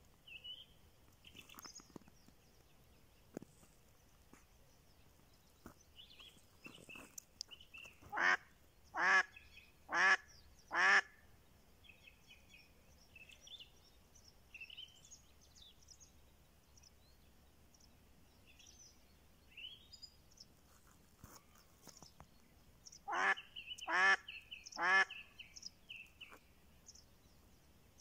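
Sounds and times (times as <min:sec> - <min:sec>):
duck quacking: 0:08.1 - 0:08.4, 0:09.9 - 0:11.1, 0:23.1 - 0:25.1.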